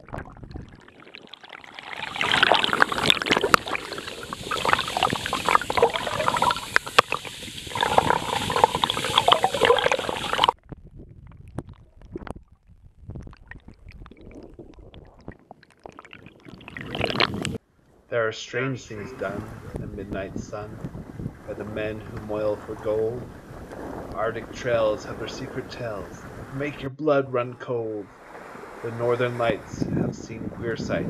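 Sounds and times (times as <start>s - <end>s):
crackling clicks underwater: 0.0s - 18.0s
underwater water rushing and bubbling: 0.0s - 18.0s, 18.9s - 26.7s, 28.0s - 29.8s
paddle strokes in water: 1.0s - 10.6s, 28.1s - 28.9s.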